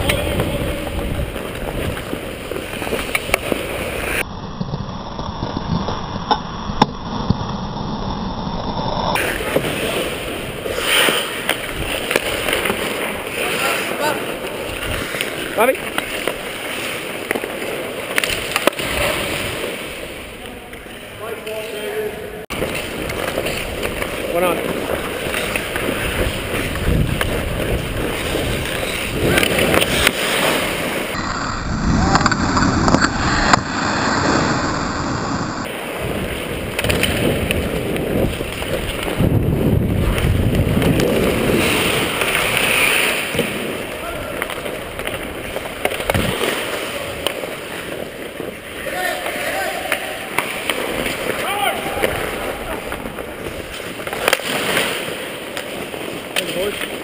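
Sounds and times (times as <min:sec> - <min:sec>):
wind buffeting microphone: 0:00.0 - 0:02.5, 0:24.9 - 0:30.0, 0:31.1 - 0:42.2
skates scraping on ice: 0:00.0 - 0:57.0.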